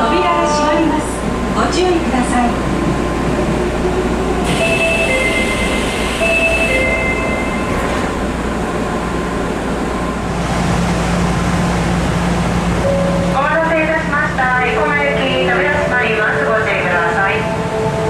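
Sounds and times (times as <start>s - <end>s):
train doors sliding shut: 4.4s - 9.1s.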